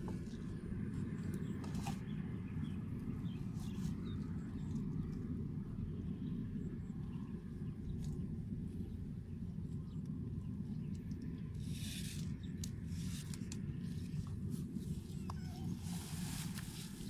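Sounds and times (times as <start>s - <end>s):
steady low rumble: 0.0s - 17.0s
hands rustling grass and netting: 11.6s - 17.0s.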